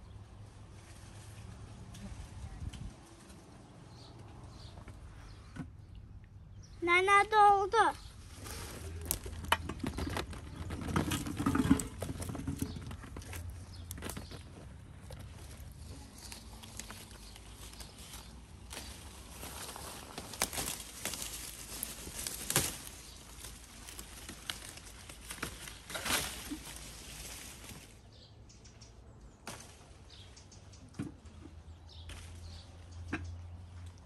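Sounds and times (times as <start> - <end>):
leaves and branches rustling: 0.0 - 5.5, 6.8 - 28.3, 29.4 - 34.0
sharp cracks of branches: 16.2 - 28.0, 29.4 - 30.2.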